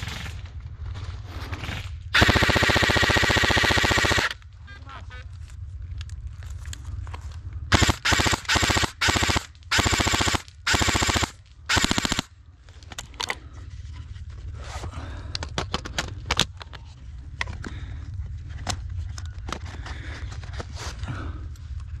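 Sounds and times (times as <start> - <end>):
airsoft rifle firing bursts: 2.2 - 4.4, 7.7 - 12.3.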